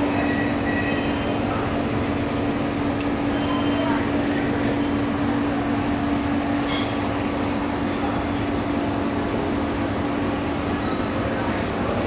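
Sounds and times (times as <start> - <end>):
machinery hum: 0.0 - 12.0.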